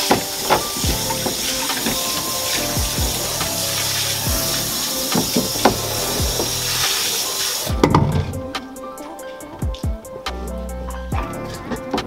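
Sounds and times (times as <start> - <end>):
hose spraying water on hull: 0.0 - 7.7
background music with drum hits: 0.0 - 12.0.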